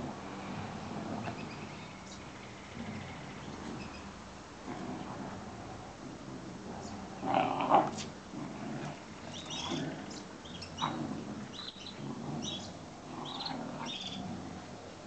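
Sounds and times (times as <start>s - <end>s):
dogs growling in play: 0.0s - 15.0s.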